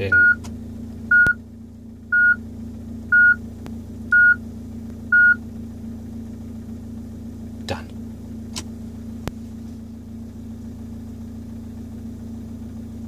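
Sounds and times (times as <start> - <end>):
short high beeps: 4.1 - 4.4.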